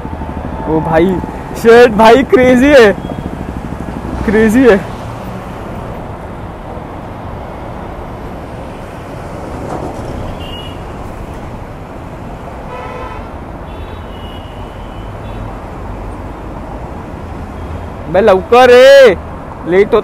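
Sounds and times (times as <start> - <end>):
motorcycle engine and wind rush: 0.0 - 13.8
horn toot: 12.7 - 13.3.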